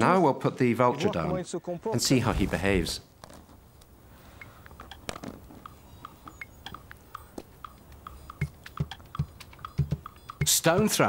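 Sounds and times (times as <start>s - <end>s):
bird clicking and tapping on rock: 3.2s - 11.0s.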